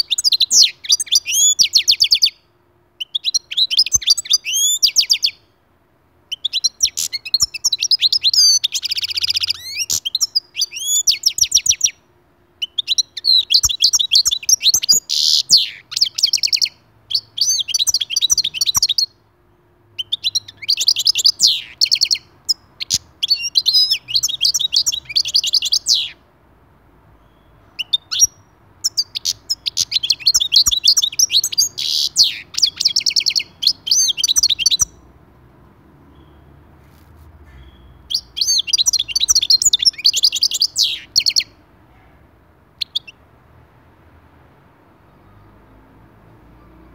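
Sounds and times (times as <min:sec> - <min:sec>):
goldfinch singing: 0:00.0 - 0:02.4, 0:03.0 - 0:05.4, 0:06.3 - 0:12.0, 0:12.6 - 0:19.2, 0:20.0 - 0:26.2, 0:27.2 - 0:35.1, 0:37.5 - 0:41.6, 0:42.8 - 0:43.2.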